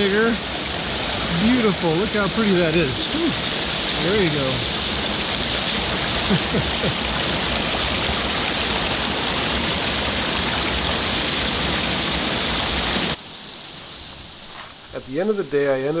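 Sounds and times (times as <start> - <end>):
small cascade spilling into pool: 0.0 - 13.2
brook rushing over stones: 0.0 - 15.8.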